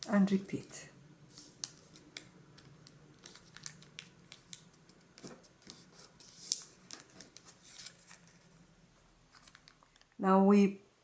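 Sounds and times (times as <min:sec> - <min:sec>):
paper being folded: 0:01.3 - 0:08.6, 0:09.3 - 0:10.1.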